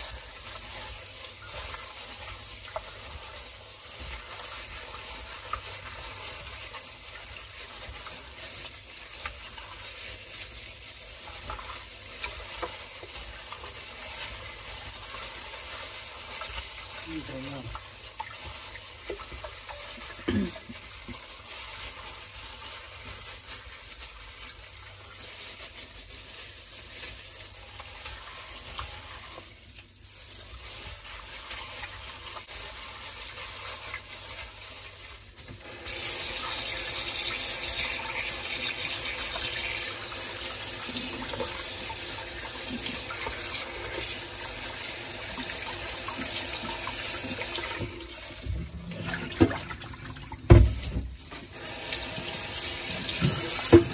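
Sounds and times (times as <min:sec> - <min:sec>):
wet squishing of raw chicken: 0:00.0 - 0:53.9
tap water running into sink: 0:16.2 - 0:21.4, 0:35.4 - 0:53.9.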